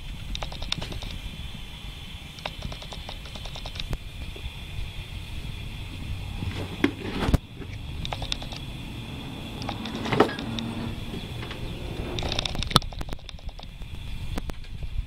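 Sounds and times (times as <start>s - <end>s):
light clicks: 2.4s - 4.0s
cardboard box rustling and scraping: 6.4s - 7.8s.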